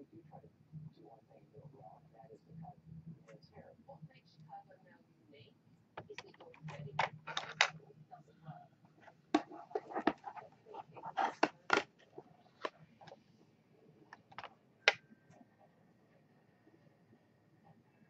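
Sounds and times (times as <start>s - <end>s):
makeup brushes clicking and tapping: 6.0s - 7.8s, 8.9s - 13.2s, 14.1s - 15.0s.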